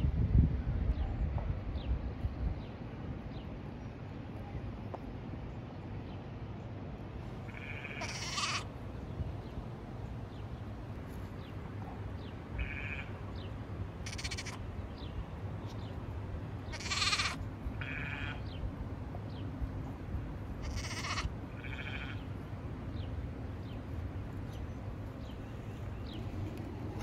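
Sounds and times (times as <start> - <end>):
low steady hum: 0.0 - 27.0
sheep bleating: 7.4 - 8.7, 12.5 - 13.2, 14.0 - 14.6, 16.7 - 18.4, 20.6 - 22.2.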